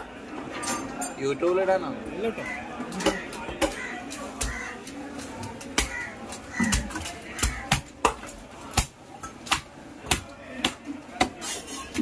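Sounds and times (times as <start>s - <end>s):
cleaver chopping on wooden block: 5.7s - 8.9s.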